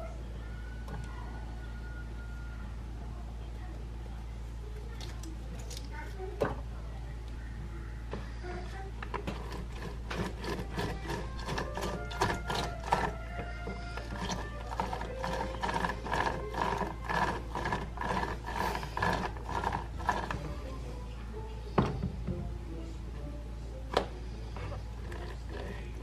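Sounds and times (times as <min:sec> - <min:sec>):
lemon creaking on citrus juicer: 0:09.0 - 0:20.5, 0:24.7 - 0:26.0
background music: 0:09.4 - 0:26.0.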